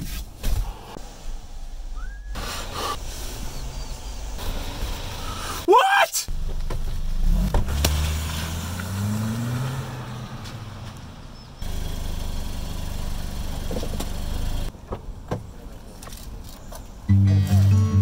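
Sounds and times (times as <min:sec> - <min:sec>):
car engine running: 0:11.4 - 0:14.7.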